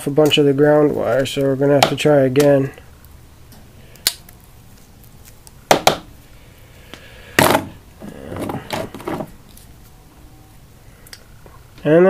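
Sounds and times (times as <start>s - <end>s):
soft rustling: 8.0s - 10.3s.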